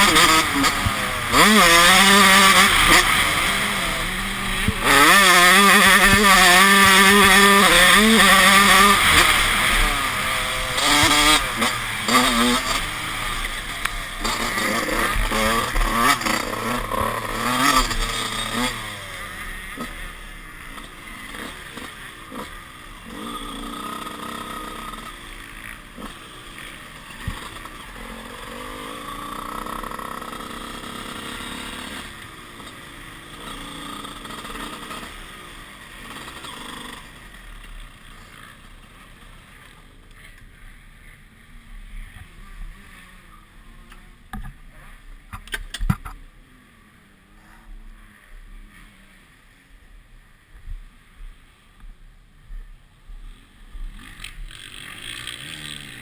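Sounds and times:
motocross engine revving: 0:00.0 - 0:40.4, 0:53.7 - 0:56.0.

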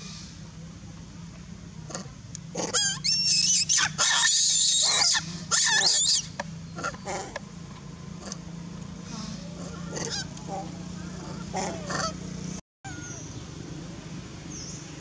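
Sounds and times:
macaques screaming: 0:02.6 - 0:07.3, 0:09.1 - 0:12.2.

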